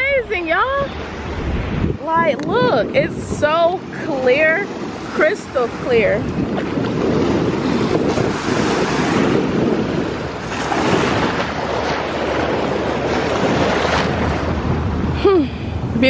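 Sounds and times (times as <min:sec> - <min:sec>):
small waves washing on sand: 0:00.0 - 0:16.0
wind on microphone: 0:00.0 - 0:16.0.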